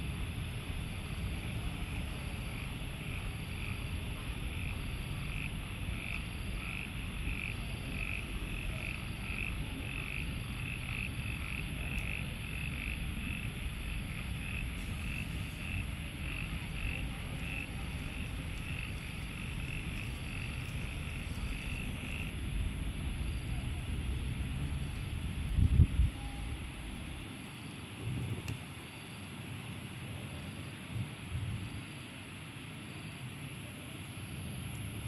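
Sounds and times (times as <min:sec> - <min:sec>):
frog calling: 0:05.2 - 0:24.0.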